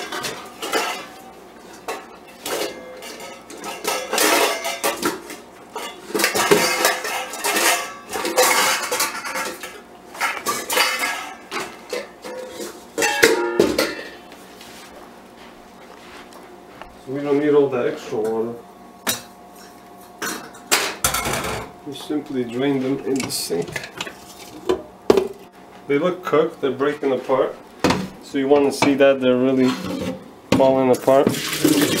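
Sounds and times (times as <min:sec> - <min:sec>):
metal pot and utensils clattering: 0:00.0 - 0:14.2, 0:19.1 - 0:21.7, 0:23.0 - 0:25.4, 0:29.6 - 0:32.0.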